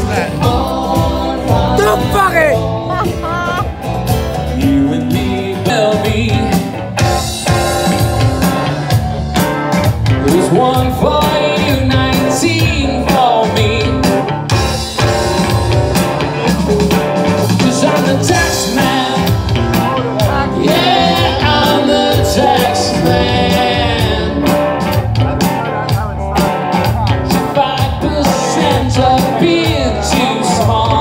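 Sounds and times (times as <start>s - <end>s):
person singing: 0.0s - 3.8s, 10.2s - 14.2s, 17.5s - 31.0s
live rock band playing: 0.0s - 31.0s.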